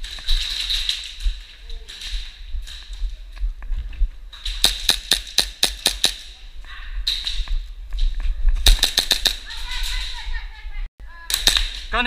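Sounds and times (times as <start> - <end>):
airsoft pistol shots: 8.7 - 9.5.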